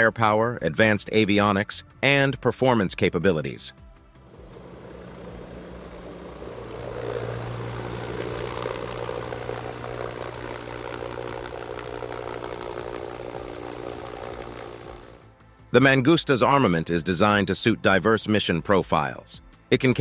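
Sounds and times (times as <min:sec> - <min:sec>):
helicopter rotor and engine: 0:04.1 - 0:15.3
low hum: 0:04.1 - 0:15.6.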